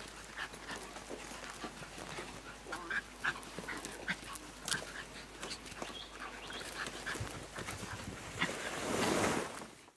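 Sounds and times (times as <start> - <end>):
feet scuffling in loose dirt: 0.0 - 9.8.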